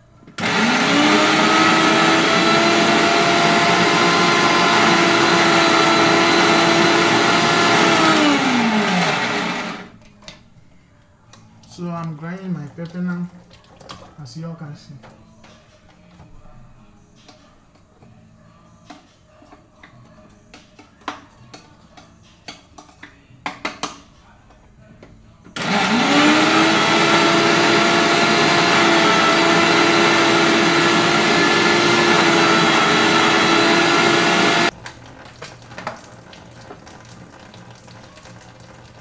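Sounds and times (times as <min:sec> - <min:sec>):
electric blender grinding: 0:00.4 - 0:09.9, 0:25.6 - 0:34.8.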